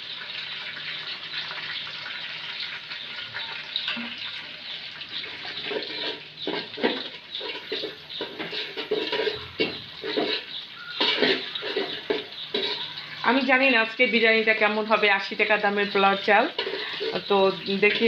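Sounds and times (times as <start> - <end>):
spices sizzling in hot oil: 0.0 - 18.0
ladle scraping metal pot: 5.2 - 13.5, 16.1 - 18.0.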